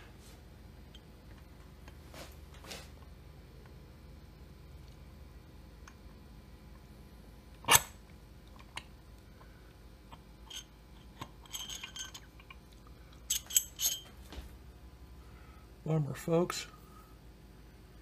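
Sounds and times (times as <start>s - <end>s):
metal parts clicking: 10.5s - 12.6s, 13.3s - 14.1s.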